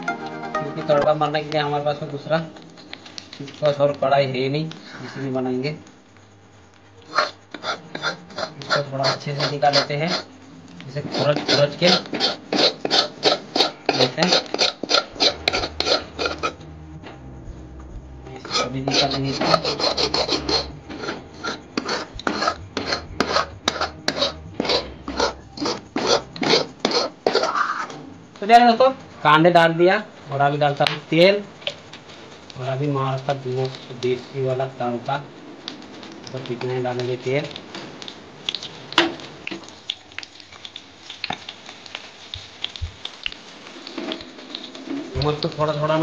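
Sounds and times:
steel ladle scraping a pan: 7.1s - 10.3s, 11.0s - 16.6s, 18.4s - 27.9s
onions sizzling in hot oil: 29.2s - 46.0s.

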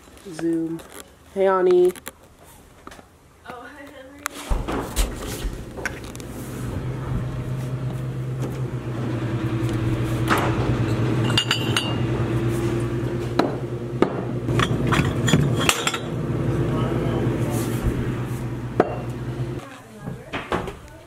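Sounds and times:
steady low hum: 4.5s - 19.6s
knocks and clinks: 10.8s - 12.0s, 14.5s - 16.2s.

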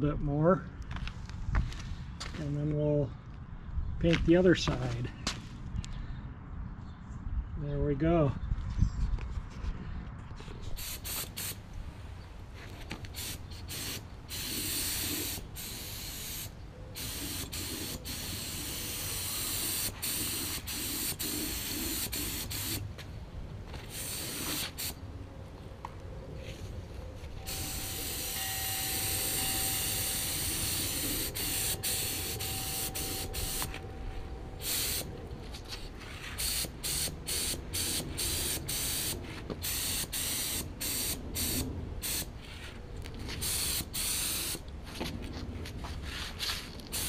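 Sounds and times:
spray gun hissing: 13.2s - 22.8s, 23.9s - 25.0s, 27.5s - 33.8s, 34.6s - 35.1s, 36.2s - 42.3s, 43.4s - 44.6s.

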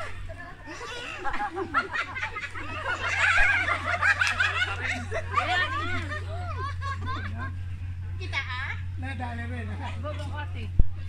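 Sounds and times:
group of people laughing: 0.0s - 7.6s.

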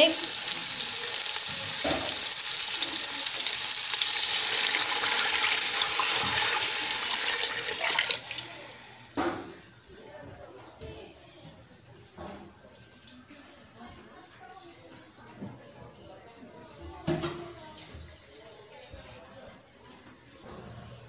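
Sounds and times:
water pouring into hot pot sizzling: 0.0s - 9.2s.

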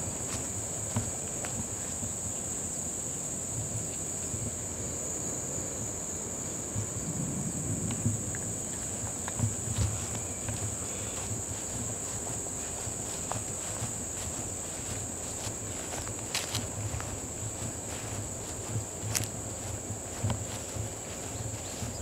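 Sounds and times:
high-pitched insect chorus: 0.0s - 22.0s
wind noise on microphone: 5.6s - 22.0s
microphone handling rumble: 6.8s - 22.0s.

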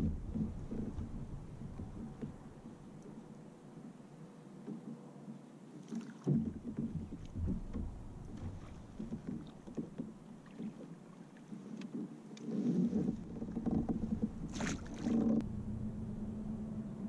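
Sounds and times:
water slapping against kayak hull: 0.0s - 3.4s, 5.7s - 15.4s.

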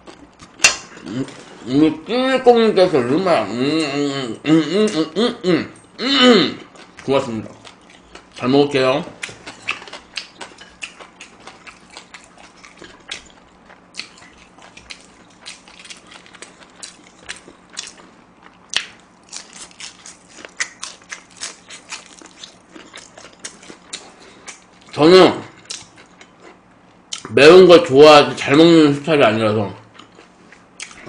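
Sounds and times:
person chewing food: 0.0s - 1.9s, 5.8s - 27.3s, 29.8s - 31.0s.

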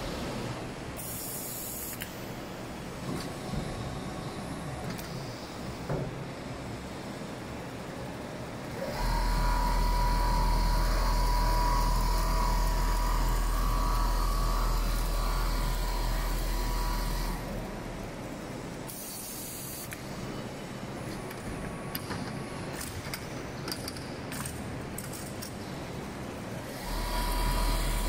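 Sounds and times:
quilting machine running: 8.7s - 18.0s, 26.6s - 28.0s.

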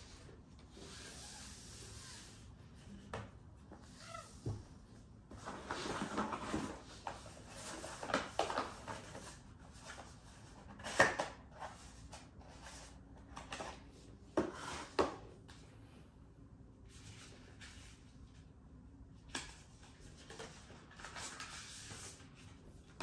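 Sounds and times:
cardboard rustling and scraping: 5.3s - 15.2s.

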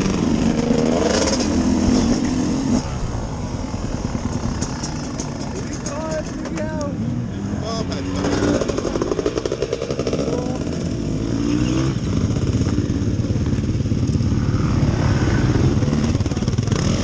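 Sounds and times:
motorcycle engine idling: 3.4s - 8.0s, 8.6s - 11.0s.

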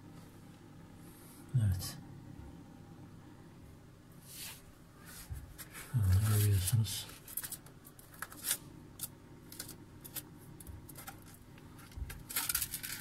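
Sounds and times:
plastic rustle: 5.2s - 10.3s, 10.9s - 13.0s
plastic clicks and scratches: 7.1s - 13.0s.

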